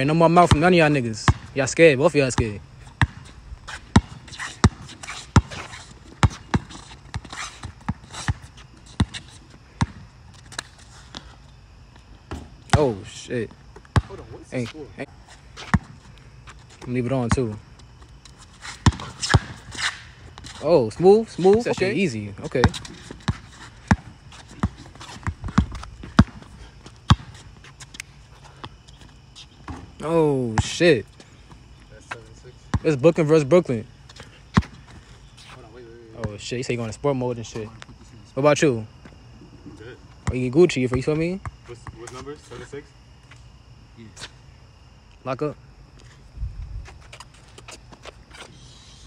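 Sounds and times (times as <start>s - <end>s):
basketball bouncing on asphalt: 0.3s - 11.2s, 11.9s - 14.2s, 15.6s - 28.0s, 28.6s - 30.8s, 31.4s - 32.9s, 34.1s - 35.1s, 40.1s - 42.2s.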